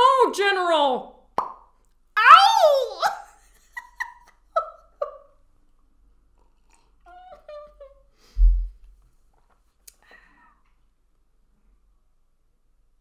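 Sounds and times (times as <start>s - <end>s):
loud dull thump: 8.4s - 8.8s.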